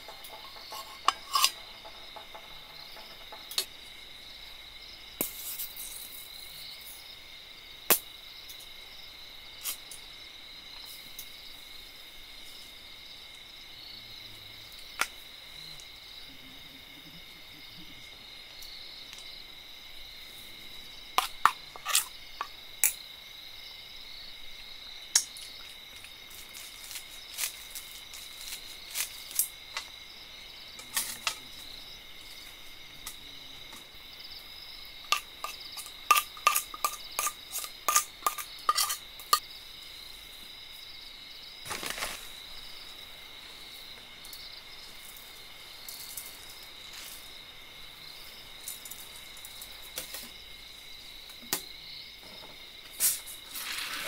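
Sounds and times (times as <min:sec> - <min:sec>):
metal bowls and utensils clinking: 0:00.0 - 0:03.6, 0:35.1 - 0:39.4
crickets chirring: 0:00.0 - 0:54.0.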